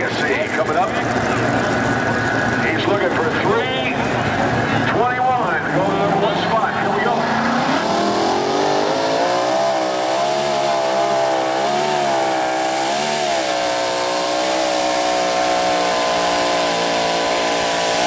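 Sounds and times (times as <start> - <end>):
tractor racing engine running flat out: 0.0 - 18.0.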